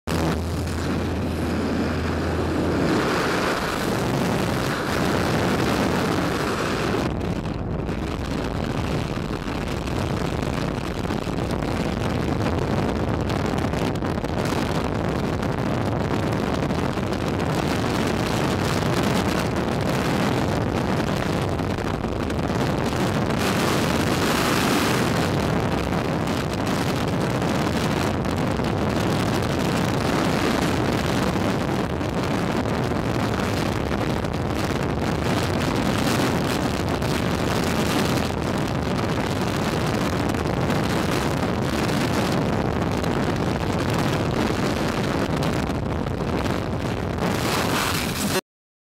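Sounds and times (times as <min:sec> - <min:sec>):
freefall wind rushing over microphone: 0:00.0 - 0:48.4
aircraft engine drone: 0:00.1 - 0:07.0.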